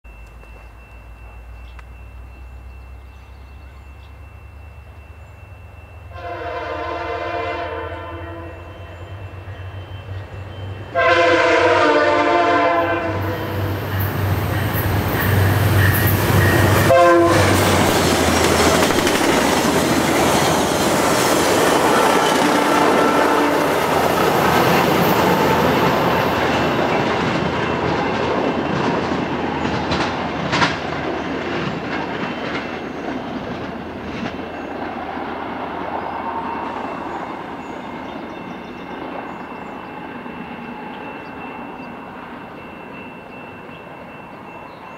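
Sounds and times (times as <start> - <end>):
train horn: 6.1 - 9.2, 10.8 - 14.0, 15.2 - 18.1, 21.6 - 26.0
train wheels clattering over rail joints: 17.5 - 23.0, 24.0 - 35.5.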